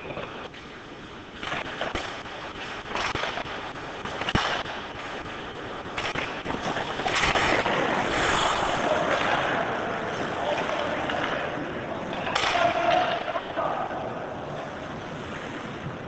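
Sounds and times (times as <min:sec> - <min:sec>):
skate blades scraping ice: 0:00.0 - 0:16.0
steady scraping hiss: 0:00.0 - 0:16.0
hockey sticks clacking on puck: 0:01.4 - 0:14.1.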